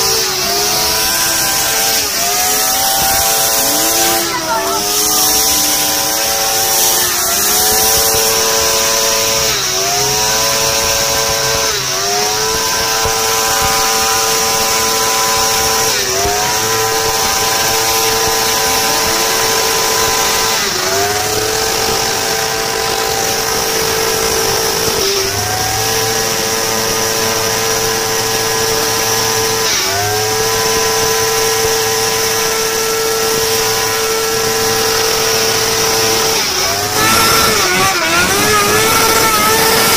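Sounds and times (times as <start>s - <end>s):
motorcycle engine revving high: 0.0s - 39.9s.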